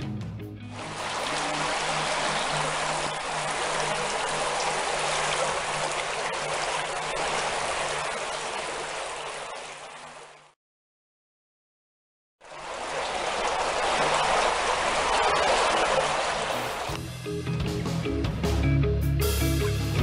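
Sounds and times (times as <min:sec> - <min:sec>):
floodwater rushing: 0:00.7 - 0:10.6, 0:12.4 - 0:17.0.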